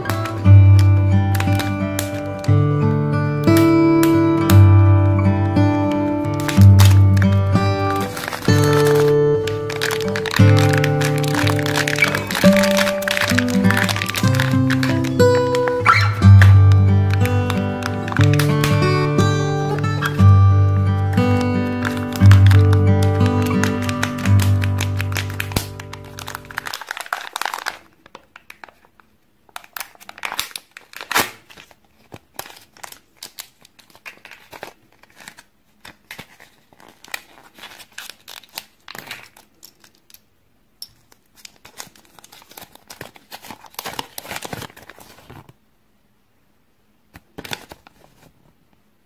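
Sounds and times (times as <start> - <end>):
plastic capsule clicks: 0.0 - 2.6, 5.9 - 20.4, 21.0 - 28.8
background music: 0.0 - 26.6
paper leaflet rustling: 0.0 - 40.2, 41.0 - 45.6, 47.1 - 48.6
wrapping crinkling and tearing: 0.0 - 40.3, 40.9 - 45.6, 47.1 - 48.5.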